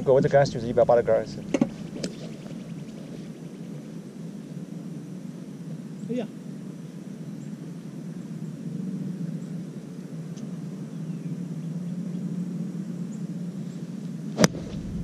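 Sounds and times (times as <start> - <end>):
low background hum: 0.0 - 15.0
golf club striking ball: 1.5 - 2.2, 14.4 - 15.0.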